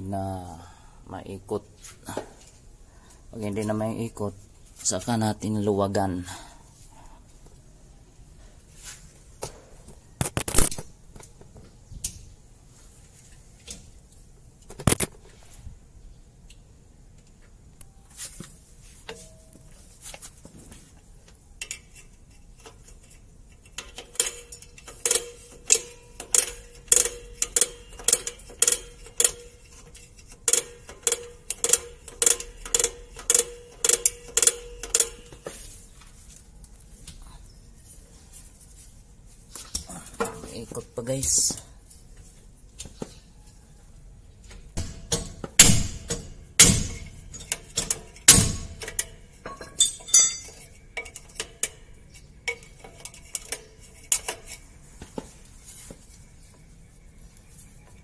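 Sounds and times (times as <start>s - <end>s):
metallic ratchet clicks: 22.6s - 35.3s, 44.8s - 49.2s
metallic knocks: 44.8s - 51.9s.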